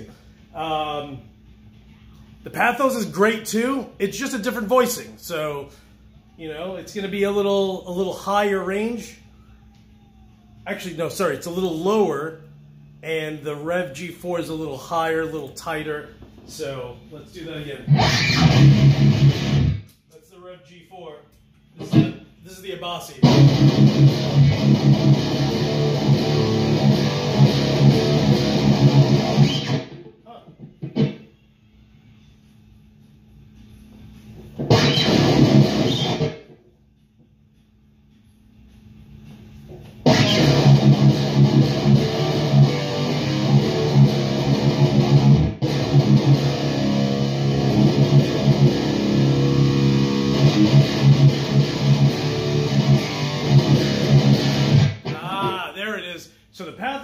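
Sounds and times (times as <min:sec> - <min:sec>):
distorted electric guitar riff: 0:17.9 - 0:19.9, 0:23.2 - 0:31.3, 0:34.6 - 0:36.6, 0:40.0 - 0:55.7.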